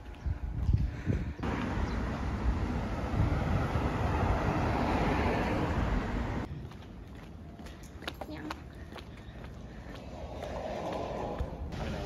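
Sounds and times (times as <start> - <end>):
road traffic rushing: 1.4 - 7.6, 9.4 - 12.0.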